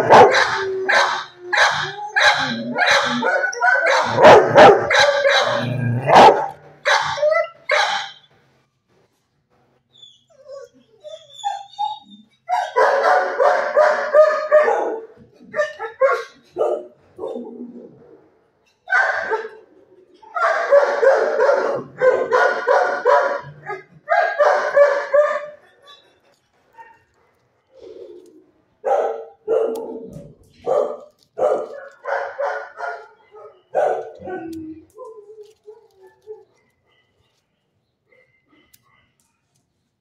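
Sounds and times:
dog barking: 0.0 - 8.2, 12.5 - 17.4, 18.9 - 19.6, 20.4 - 25.6, 28.8 - 34.7.

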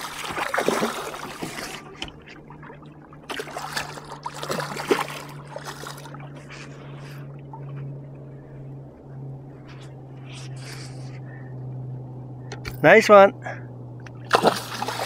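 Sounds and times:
fish splashing in water: 0.0 - 6.4, 14.2 - 15.0
idling boat motor hum: 0.0 - 15.0.

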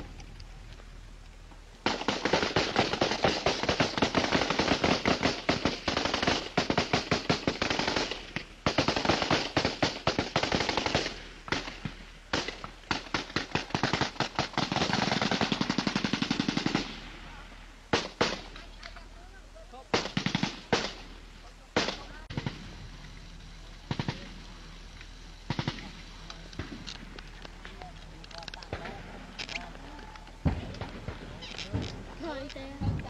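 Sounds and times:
automatic weapons fire: 1.8 - 17.1, 17.9 - 18.6, 19.9 - 21.2, 21.8 - 22.7, 25.5 - 25.9.

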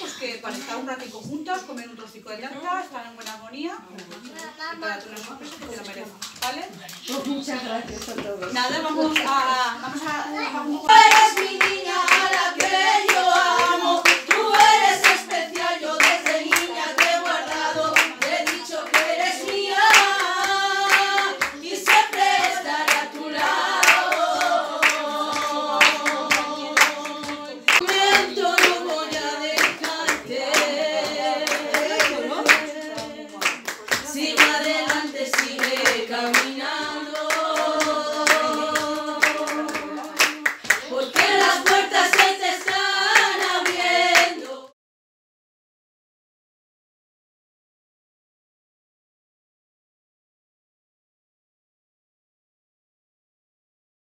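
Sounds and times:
voices singing together: 7.2 - 44.8
quick steady handclaps: 10.9 - 44.4.

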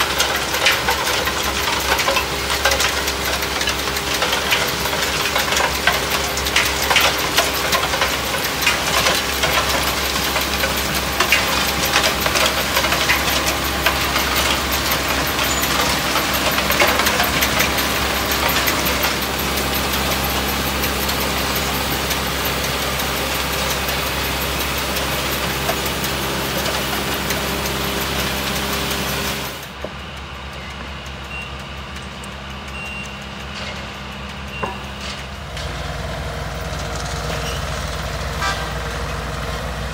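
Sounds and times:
metallic clattering and knocking: 0.0 - 29.4
diesel engines running: 0.0 - 39.9.

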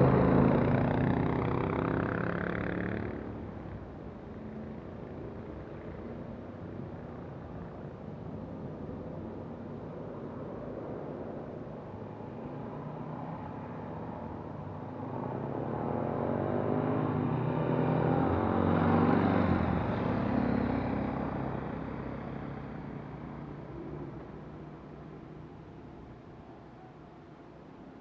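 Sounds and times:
motorcycles passing by: 0.0 - 6.4, 12.2 - 24.7.

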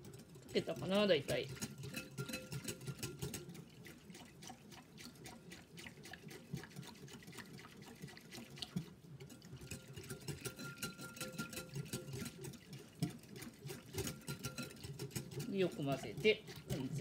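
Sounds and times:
whisk wires clicking on glass: 0.0 - 3.6, 9.6 - 13.1, 13.9 - 17.0
liquid swishing: 0.0 - 17.0.

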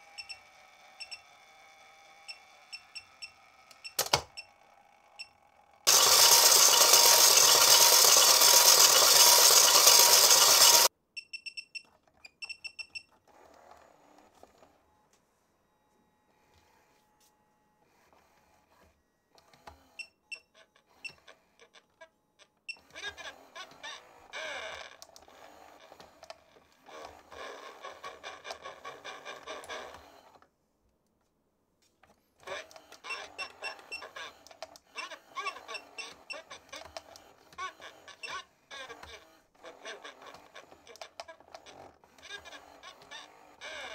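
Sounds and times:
toy mechanism clicks: 0.0 - 10.9, 32.4 - 43.9
toy speaker voice and effects: 34.9 - 43.9.

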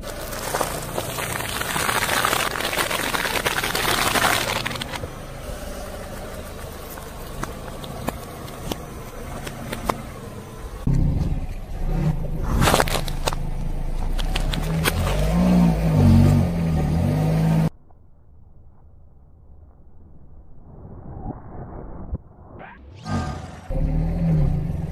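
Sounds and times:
watermelon rind cracking: 0.0 - 5.0, 12.5 - 13.5
crackles and clicks: 0.0 - 10.2, 10.8 - 15.4
car tyre crushing food: 0.0 - 16.3
car engine running: 0.0 - 17.7.

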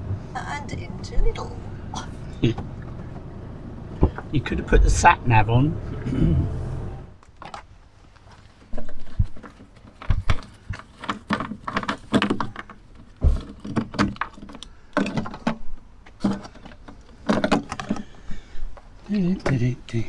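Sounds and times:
plastic container knocking and rattling: 8.7 - 18.2.

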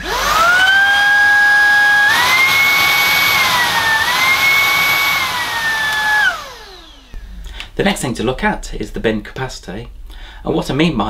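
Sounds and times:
vacuum cleaner motor whining: 0.0 - 7.2.

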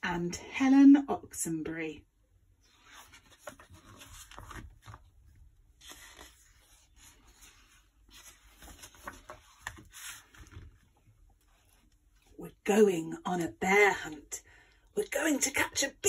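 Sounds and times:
book pages rustling: 2.6 - 12.4.

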